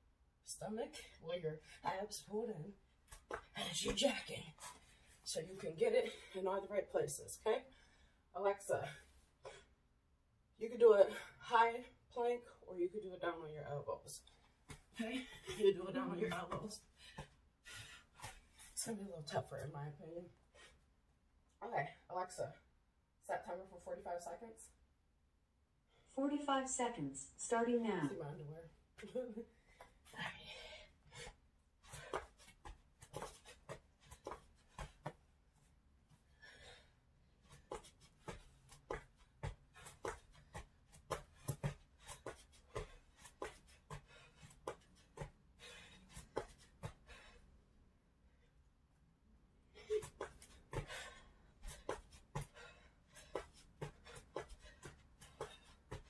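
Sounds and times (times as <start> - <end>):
feet tapping on exercise mat: 3.0 - 4.8, 14.4 - 19.4, 31.1 - 35.4, 37.3 - 47.4, 49.8 - 56.0.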